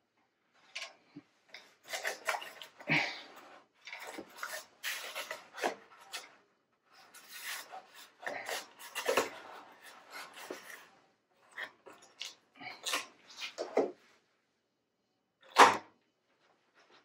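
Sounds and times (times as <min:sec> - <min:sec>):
plastic parts scraping and knocking: 0:00.6 - 0:14.1.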